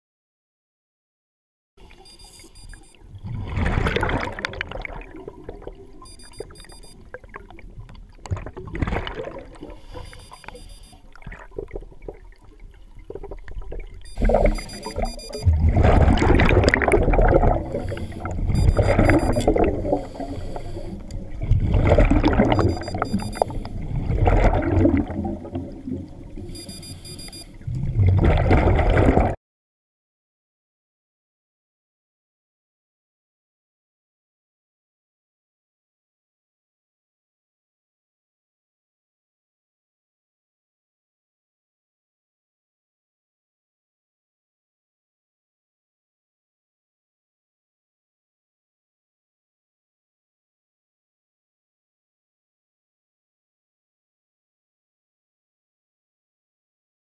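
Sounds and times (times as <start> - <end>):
faint high pulsed beeps: 1.9 - 3.0, 6.0 - 7.1, 9.9 - 11.1, 14.0 - 15.5, 17.9 - 20.8, 22.5 - 23.7, 26.5 - 27.6
underwater exhaled bubbles gurgling: 3.0 - 26.6, 27.5 - 29.4.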